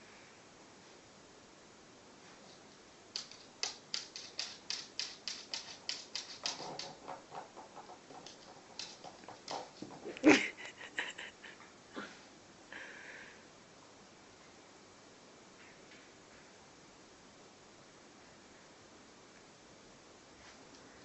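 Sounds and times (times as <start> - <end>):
dog claws clicking on wooden floor: 3.1 - 10.2.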